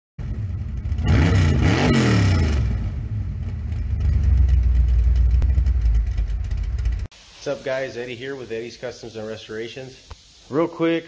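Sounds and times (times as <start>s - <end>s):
car engine revving: 0.2s - 7.1s.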